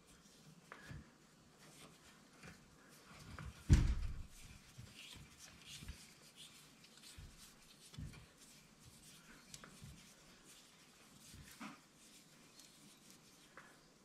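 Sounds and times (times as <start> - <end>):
thump: 3.7 - 4.3.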